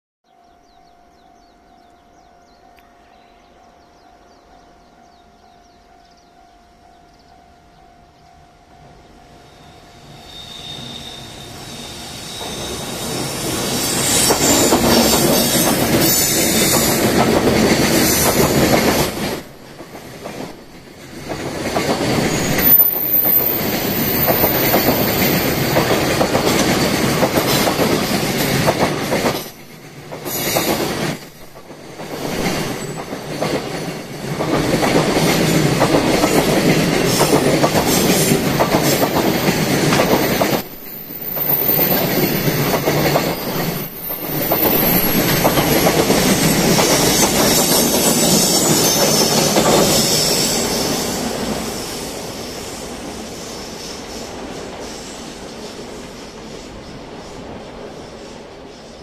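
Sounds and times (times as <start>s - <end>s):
heavy train rumble: 0.3s - 59.0s
high wheel squeal: 9.4s - 17.1s, 22.0s - 25.8s, 40.6s - 45.8s, 46.4s - 55.6s
train wheels clattering: 11.3s - 52.1s.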